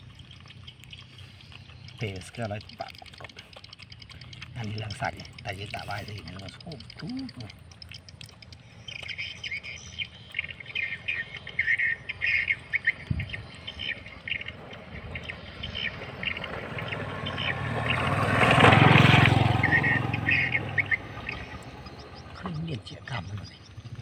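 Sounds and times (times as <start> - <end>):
small birds chirping: 0.0 - 24.0
vehicle passing by: 13.5 - 24.0.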